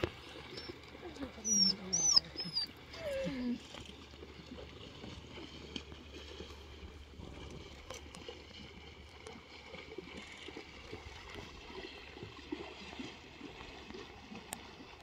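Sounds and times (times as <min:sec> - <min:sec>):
horses wading through water: 0:00.0 - 0:15.0
whining animal call: 0:01.4 - 0:03.6.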